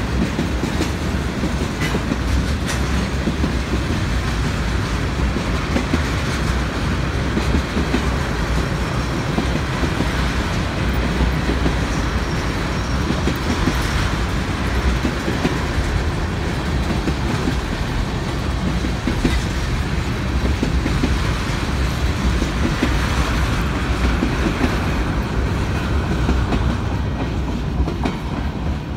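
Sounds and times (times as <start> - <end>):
train wheels rumbling on rail: 0.0 - 28.9
wheels clacking on rail joints: 0.0 - 28.9.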